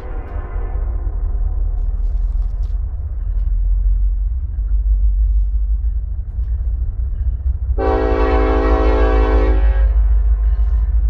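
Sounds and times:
steady low rumble: 0:00.0 - 0:11.0
locomotive air horn blast: 0:07.8 - 0:10.2.

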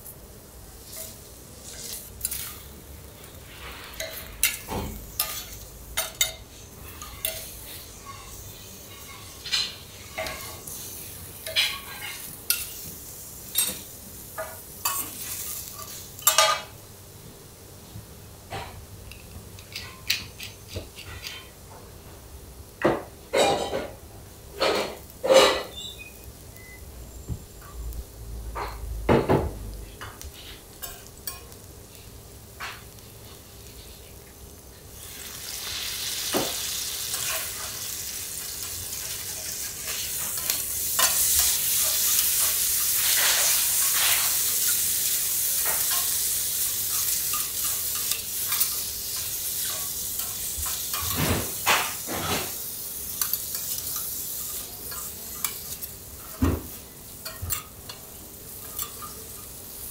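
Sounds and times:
food sizzling on a griddle: 0:00.0 - 0:59.9
utensils knocking on a griddle: 0:46.9 - 0:52.6.

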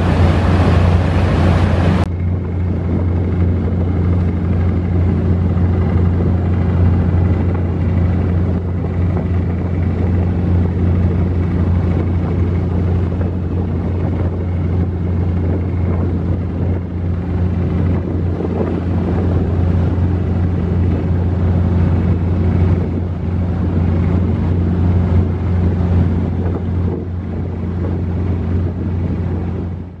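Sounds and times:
wind hiss: 0:00.0 - 0:03.4
boat engine drone: 0:00.0 - 0:30.0
rushing water: 0:00.0 - 0:30.0.

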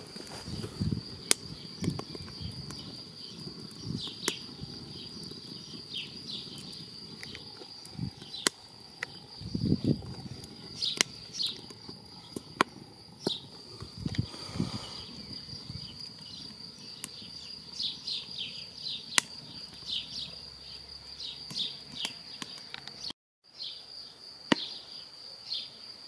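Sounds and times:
low rumbling puffs: 0:00.0 - 0:02.8, 0:13.5 - 0:16.0
wood fire crackling: 0:00.0 - 0:23.1.

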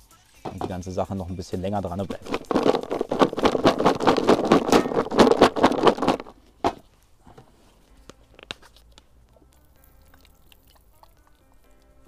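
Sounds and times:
bucket knocking down: 0:00.5 - 0:01.0, 0:01.9 - 0:06.8
bait rattling in plastic bucket: 0:01.8 - 0:06.8.

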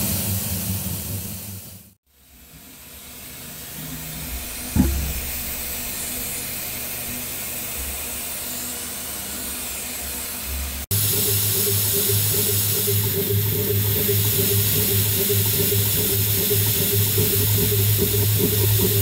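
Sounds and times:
low hum: 0:02.3 - 0:08.1
sharp knock: 0:04.7 - 0:05.7.

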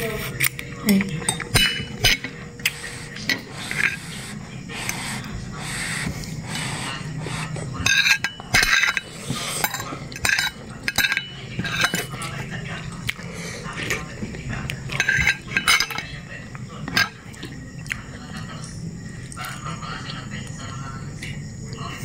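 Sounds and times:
cutlery clinking on plate: 0:01.2 - 0:02.4, 0:07.8 - 0:12.2, 0:14.9 - 0:16.1
slurping and chewing noodles: 0:02.5 - 0:07.8.

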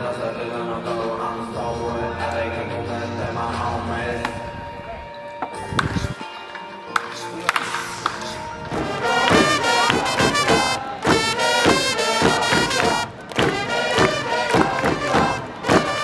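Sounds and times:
background music with strong beat: 0:05.4 - 0:16.0
sharp knocks: 0:08.7 - 0:16.0.

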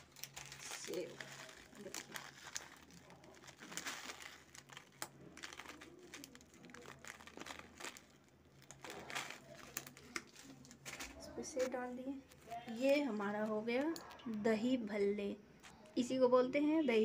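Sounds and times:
crisp snack crinkling onto a plate: 0:00.0 - 0:11.7.

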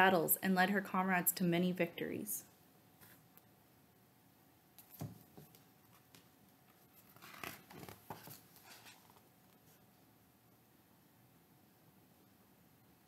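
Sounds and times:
book page rustling and flapping: 0:04.8 - 0:09.7.

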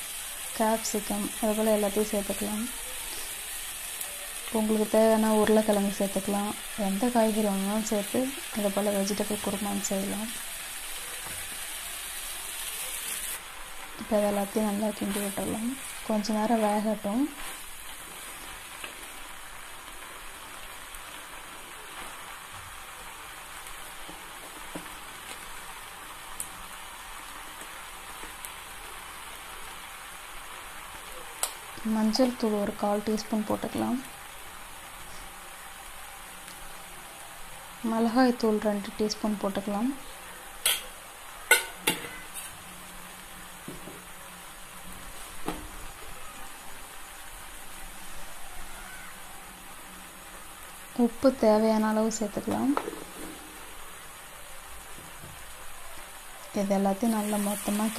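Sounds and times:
vegetables sizzling in oil: 0:00.0 - 0:57.9.

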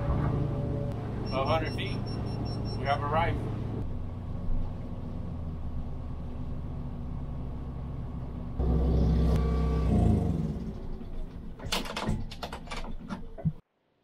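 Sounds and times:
outboard motor running: 0:08.6 - 0:10.9
sharp knocks and clatter: 0:10.8 - 0:13.6.

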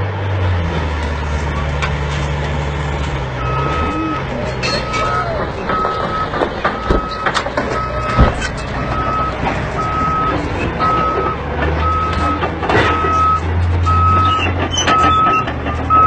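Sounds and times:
reversing alarm beeping: 0:03.4 - 0:16.0.

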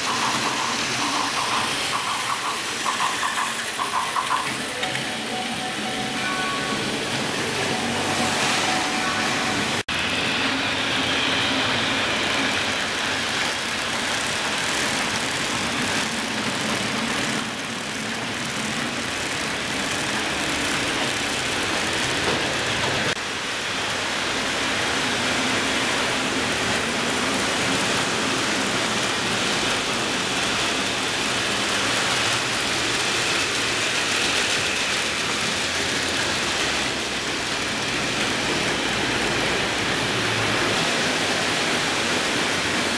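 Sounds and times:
model trains whirring on rails: 0:00.0 - 0:42.9.

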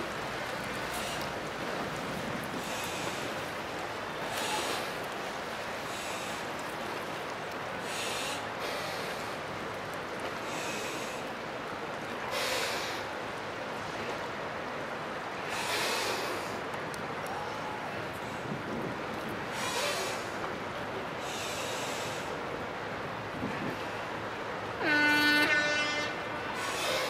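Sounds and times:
choppy river water: 0:00.0 - 0:27.0
wind: 0:00.0 - 0:27.0.

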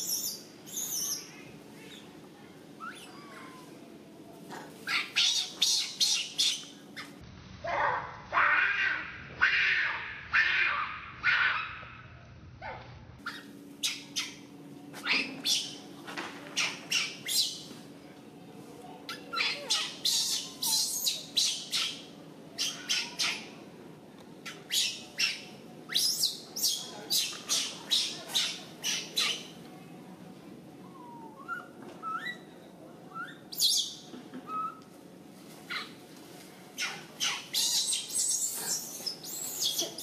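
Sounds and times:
harsh animal squawks: 0:07.8 - 0:11.8, 0:19.1 - 0:23.5.

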